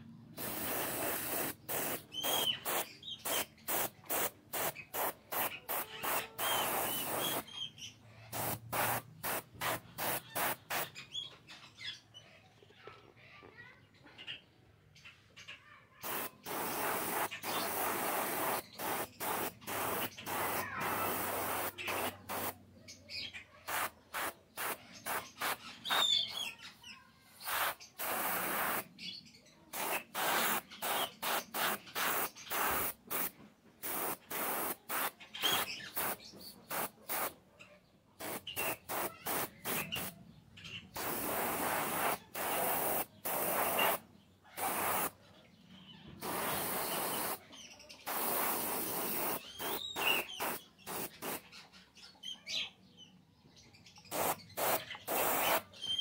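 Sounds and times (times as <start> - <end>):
paint spraying in hissing bursts: 0.4 - 7.5, 8.3 - 11.1, 16.0 - 22.6, 23.7 - 26.5, 27.4 - 29.0, 29.7 - 37.4, 38.2 - 40.2, 40.9 - 44.0, 44.6 - 45.2, 46.2 - 51.5, 54.0 - 56.0.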